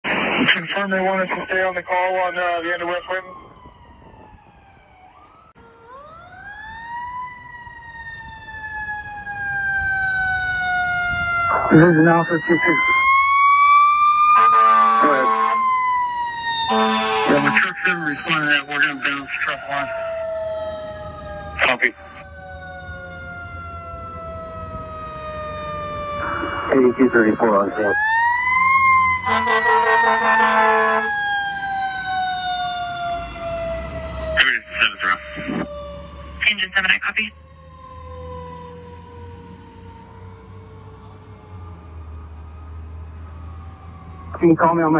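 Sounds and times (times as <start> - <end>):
fire engine siren wailing: 0.0 - 44.9
fire engine low rumble: 0.1 - 44.9
air horn blast: 14.3 - 15.6, 16.7 - 17.7, 29.2 - 31.1.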